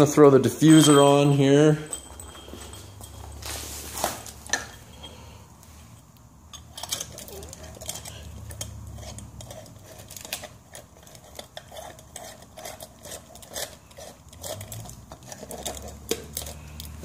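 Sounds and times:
glass jar clinking on plastic: 0:00.4 - 0:05.4.

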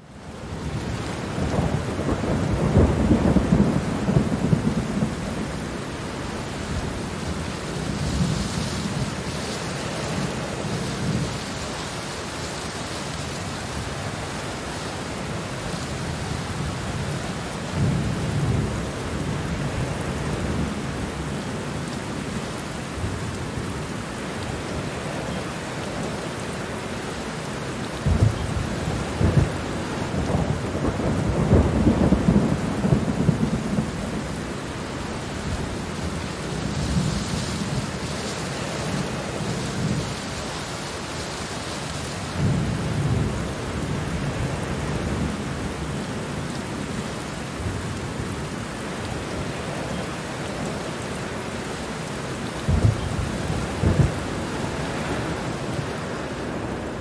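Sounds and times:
steady rain falling: 0:00.0 - 0:57.0
thunder rolls: 0:52.7 - 0:55.4.

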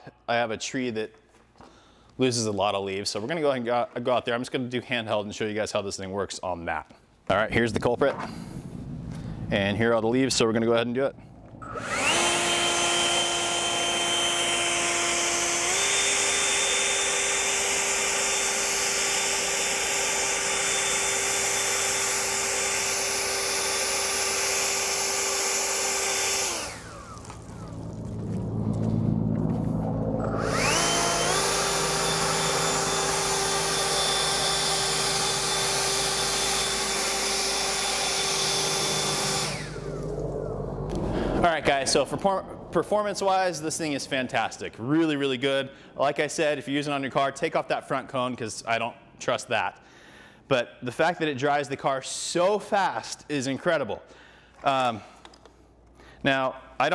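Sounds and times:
leaf blower whining: 0:11.2 - 0:43.3.

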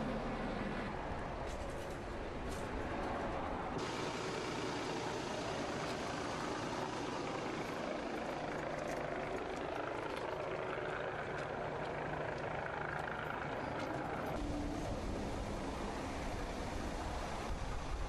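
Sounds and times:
road vehicles rumbling: 0:00.0 - 0:18.0.

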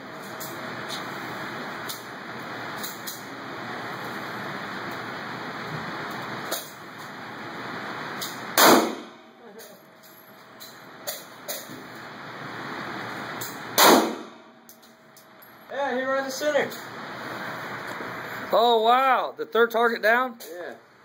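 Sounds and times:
faint gunshot cracks: 0:08.6 - 0:09.2, 0:13.8 - 0:14.4
pistol shots echoing: 0:08.6 - 0:09.2, 0:13.8 - 0:14.4.

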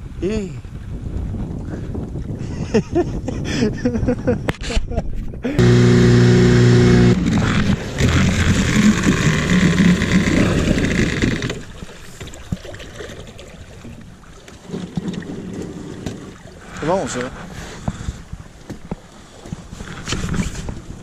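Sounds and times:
faint wind noise: 0:00.0 - 0:12.6, 0:13.5 - 0:21.0
outboard motor running: 0:05.5 - 0:12.2.

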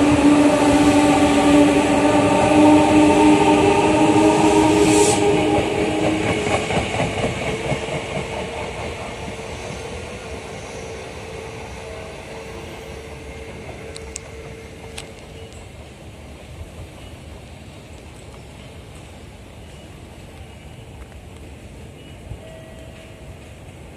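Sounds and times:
electric train motors whining: 0:00.0 - 0:15.6.

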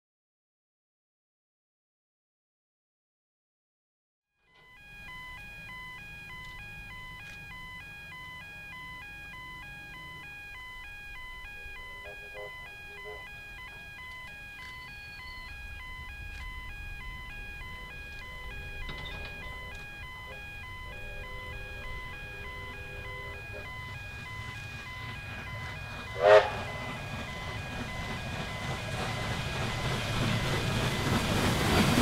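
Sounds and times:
two-tone electronic warning beeps: 0:04.5 - 0:32.0
low wind rumble: 0:10.3 - 0:32.0.

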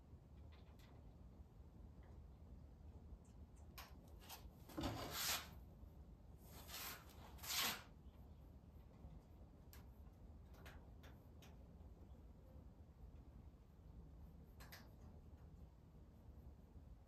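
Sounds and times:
rubbing and rustling of materials: 0:04.0 - 0:05.7, 0:06.3 - 0:10.4
faint clicks: 0:14.5 - 0:15.5.

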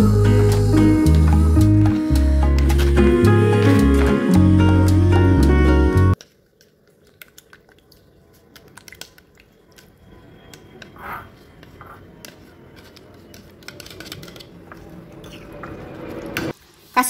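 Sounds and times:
yogurt squishing: 0:06.2 - 0:16.3.

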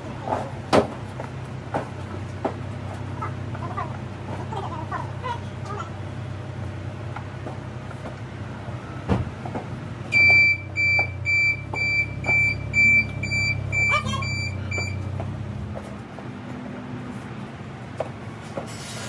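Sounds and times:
low engine rumble: 0:00.0 - 0:19.0
thump: 0:09.1 - 0:09.3
electronic beeps: 0:10.2 - 0:15.0.

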